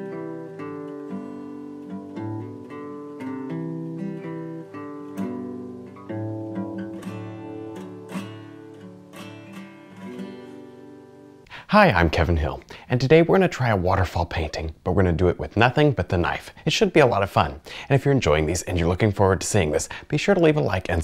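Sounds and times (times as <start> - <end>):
acoustic guitar melody: 0.0 - 12.8.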